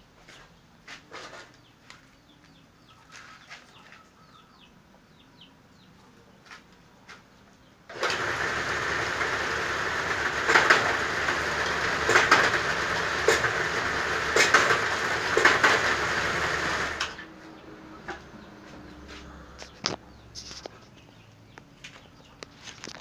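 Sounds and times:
bamboo scraping through machine: 0:07.9 - 0:17.2
sharp cracks of bamboo splitting: 0:14.3 - 0:15.9.

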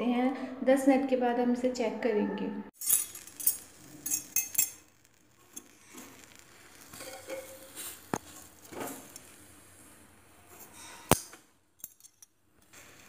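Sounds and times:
metal utensil clinking on pot: 0:02.8 - 0:04.9.

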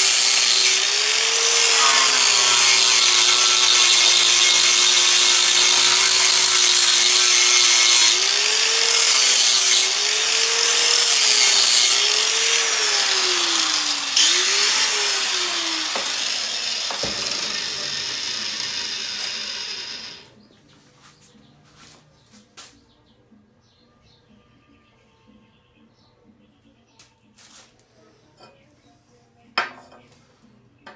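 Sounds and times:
angle grinder grinding steel: 0:00.0 - 0:20.3.

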